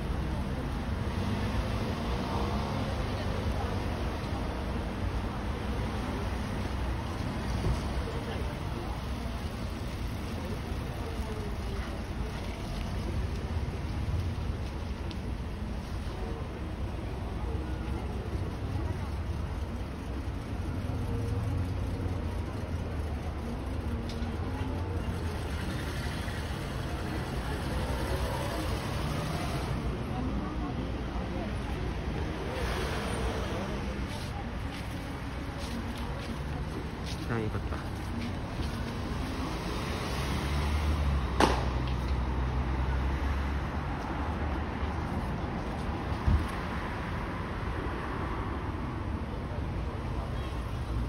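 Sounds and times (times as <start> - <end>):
distant city rumble: 0.0 - 51.0
road noise: 0.0 - 51.0
sharp knock: 41.4 - 41.8.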